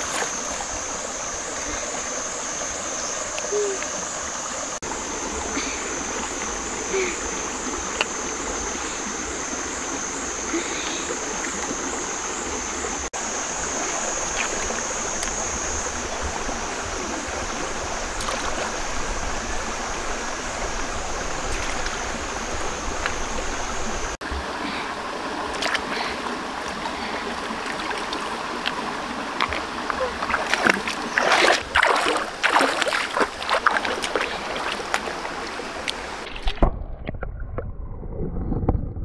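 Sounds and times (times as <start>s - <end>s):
stream water over rocks: 0.0s - 37.6s
small water splashes: 13.1s - 19.3s, 21.3s - 36.7s.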